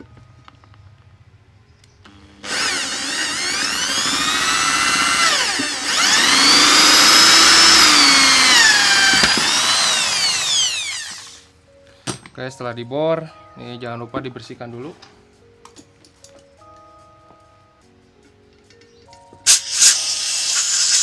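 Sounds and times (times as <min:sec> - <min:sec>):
electric drill whining: 0:02.1 - 0:11.5, 0:19.5 - 0:21.0.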